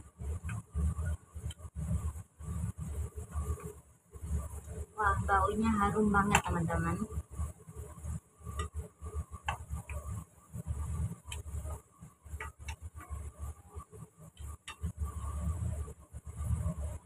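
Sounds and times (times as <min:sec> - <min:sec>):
low uneven rumble: 0:00.0 - 0:08.3.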